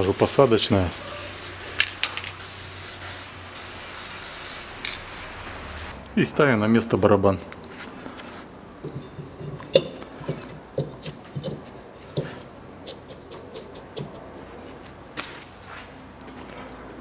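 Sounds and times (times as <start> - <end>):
brake drum metallic knocks and scrapes: 8.8 - 14.4.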